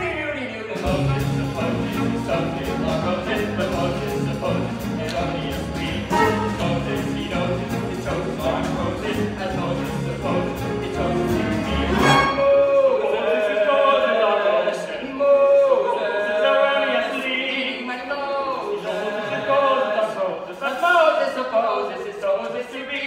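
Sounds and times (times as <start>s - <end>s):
instrumental show music: 0.0s - 12.9s.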